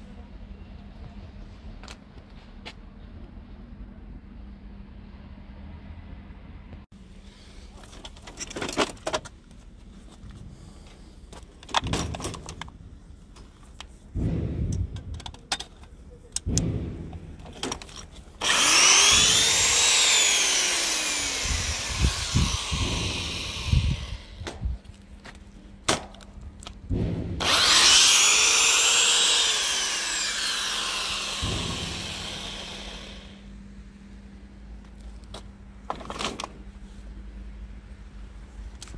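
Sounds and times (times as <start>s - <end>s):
electric drill motor whining: 18.4s - 24.4s, 27.4s - 33.4s.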